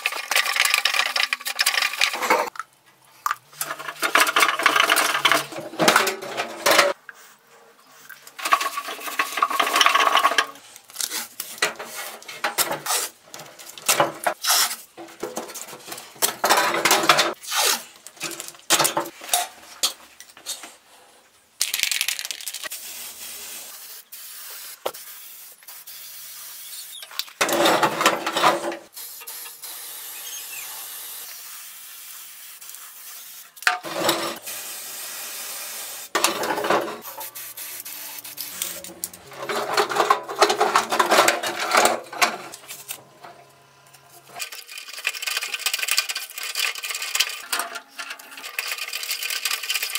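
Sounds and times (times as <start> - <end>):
spray paint can hissing: 21.8 - 27.3, 28.9 - 33.6, 34.4 - 36.2, 37.0 - 38.8.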